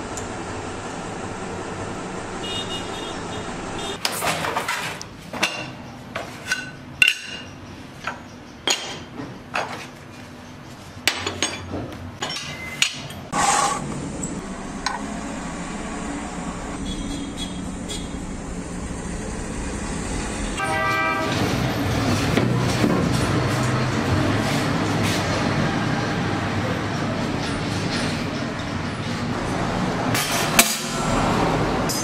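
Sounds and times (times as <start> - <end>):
metal tools clinking and knocking: 11.1 - 13.2
loud metal scrape: 13.3 - 13.9.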